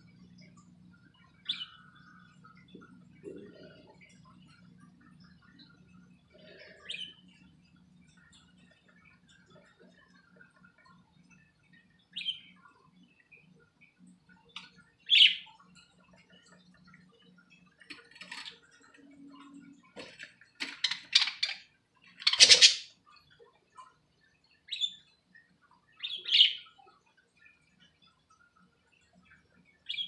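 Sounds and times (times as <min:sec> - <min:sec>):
budgerigars chirping: 0:22.2 - 0:22.8.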